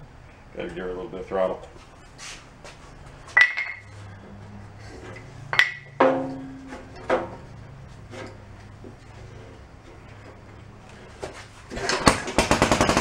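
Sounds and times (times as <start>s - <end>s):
steady low hum: 0.0s - 12.1s
metal clanks and clinks: 3.4s - 3.9s, 5.0s - 7.5s.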